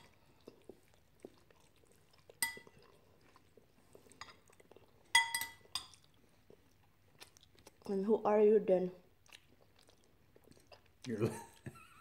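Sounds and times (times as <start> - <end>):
faint chewing: 0.0 - 8.1, 9.0 - 11.8
metal spoon clinking bowl: 2.4 - 2.7, 5.1 - 6.0.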